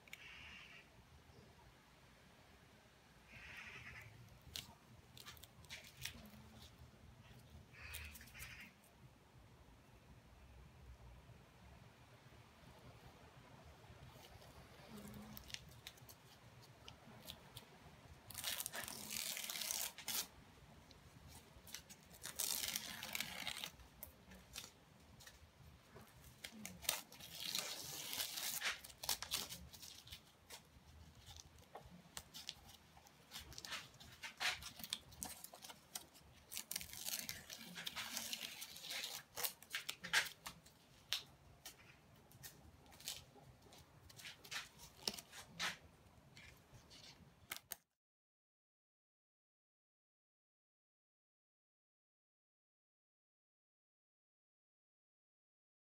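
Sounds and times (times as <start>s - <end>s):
masking tape peeling off paper: 3.9s - 6.7s, 14.1s - 17.7s, 18.3s - 25.4s, 26.0s - 45.8s, 46.4s - 47.8s.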